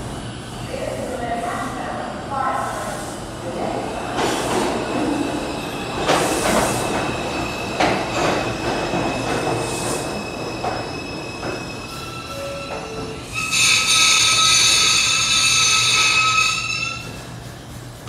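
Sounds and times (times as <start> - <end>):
subway train passing: 0.0 - 18.0
wheels squealing on rails: 4.7 - 17.6.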